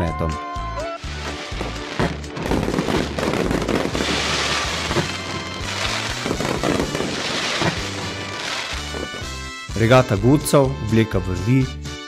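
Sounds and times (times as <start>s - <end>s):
music playing: 0.0s - 12.0s
fireworks crackling: 1.0s - 9.8s.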